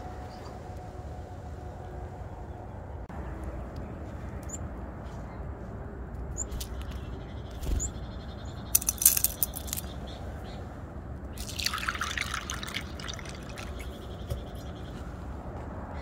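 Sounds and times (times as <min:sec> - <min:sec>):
seeds clicking into bowl: 0:08.7 - 0:09.9.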